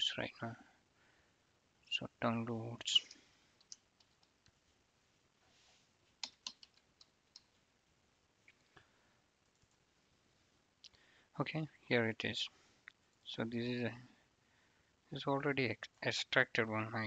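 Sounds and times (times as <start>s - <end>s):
faint keyboard clicks: 3.0s - 4.6s, 6.1s - 7.6s, 8.4s - 9.8s.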